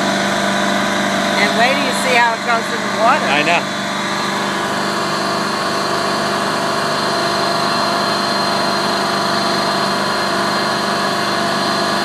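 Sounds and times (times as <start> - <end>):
boat engine humming: 0.0 - 12.0
high whine: 0.0 - 12.0.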